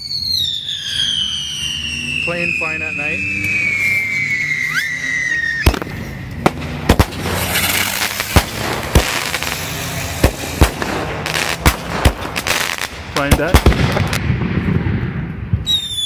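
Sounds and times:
firework crackling: 0:00.0 - 0:16.0
firecracker bangs: 0:05.6 - 0:16.0.

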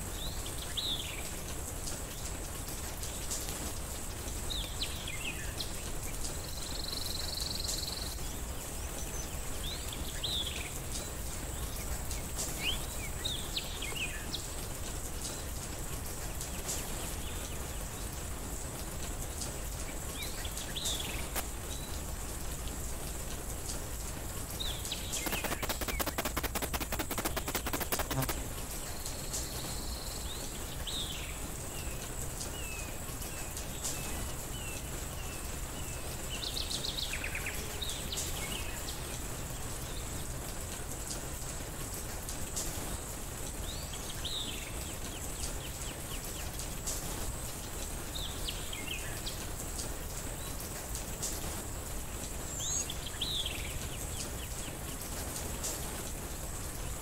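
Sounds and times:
songbirds chirping: 0:00.0 - 0:41.7, 0:42.4 - 0:57.0
steady rain falling: 0:00.0 - 0:57.0
faint high whine: 0:24.4 - 0:30.5
rapid rattle of clicks: 0:25.0 - 0:28.4.

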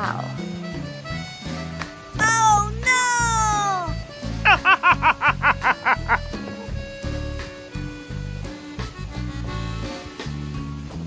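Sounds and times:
background music with bass line: 0:00.0 - 0:11.0.

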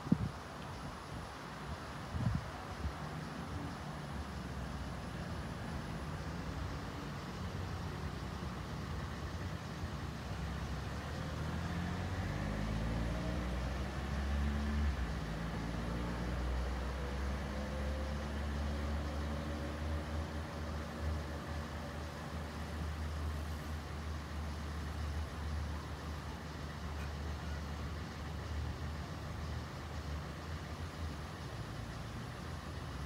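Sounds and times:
engine running with rising pitch: 0:10.4 - 0:25.9.

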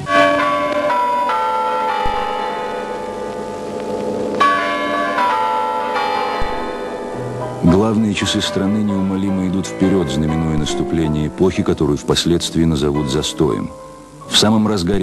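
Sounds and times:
clock tower bell chimes: 0:00.0 - 0:11.3.

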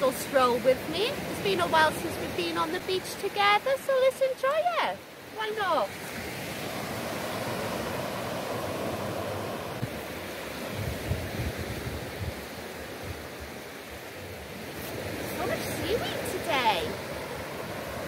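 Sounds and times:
sea on rocky shore: 0:00.0 - 0:18.0
wind on microphone: 0:06.0 - 0:13.6.

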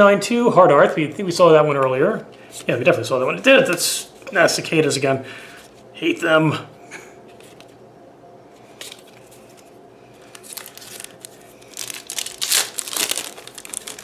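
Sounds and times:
foil pack crinkling and tearing: 0:08.8 - 0:14.0.

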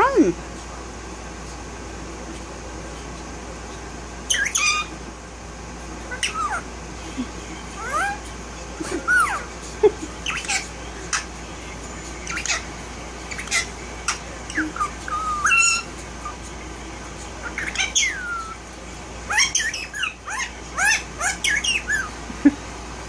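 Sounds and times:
parakeet chirping and squawking: 0:04.2 - 0:05.0, 0:06.0 - 0:06.8, 0:07.7 - 0:16.5, 0:17.3 - 0:22.2.

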